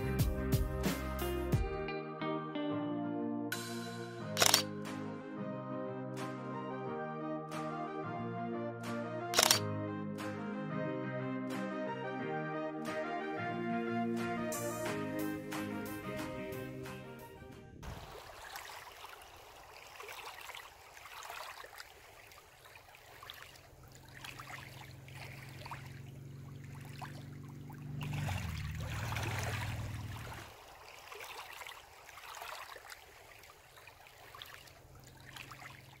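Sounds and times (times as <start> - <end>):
small waves lapping: 17.8 - 36.0.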